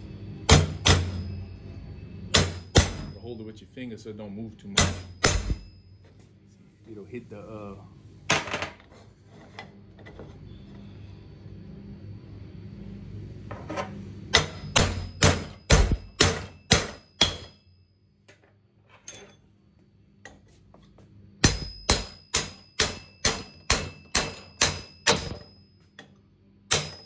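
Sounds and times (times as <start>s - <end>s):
hammer striking metal pin punch: 0.5s - 1.4s, 2.3s - 3.2s, 4.7s - 5.8s, 14.3s - 17.6s, 21.4s - 27.0s.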